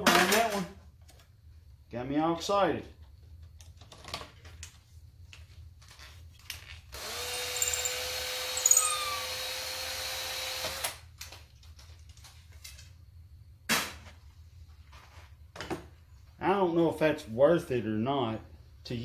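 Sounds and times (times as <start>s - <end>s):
power drill running: 7.0s - 11.0s.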